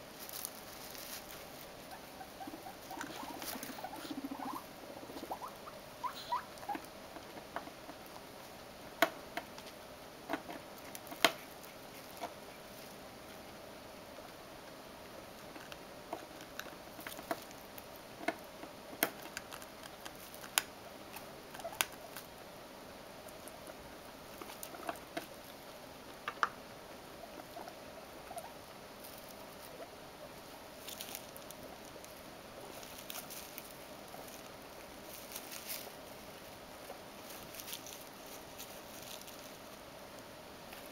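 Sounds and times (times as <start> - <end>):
hay rustling: 0.0 - 4.6, 30.4 - 39.8
guinea pigs munching: 0.0 - 40.9.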